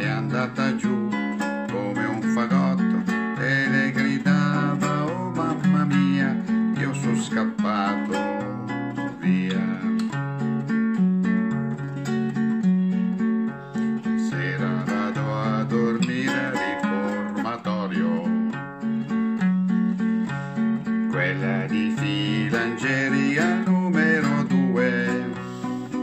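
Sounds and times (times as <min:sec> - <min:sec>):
man singing: 0:00.0 - 0:10.2, 0:13.9 - 0:18.6, 0:20.8 - 0:26.0
acoustic guitar strumming: 0:00.0 - 0:26.0.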